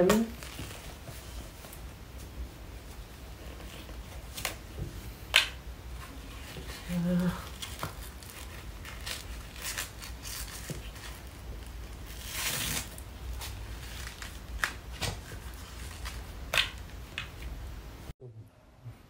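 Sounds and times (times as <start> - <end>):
cloth rustling: 5.9 - 17.5.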